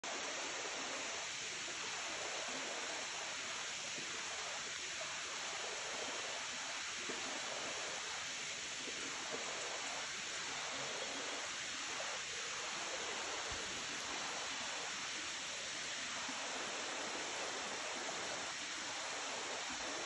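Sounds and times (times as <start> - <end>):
river water flowing over rocks: 0.1 - 20.0.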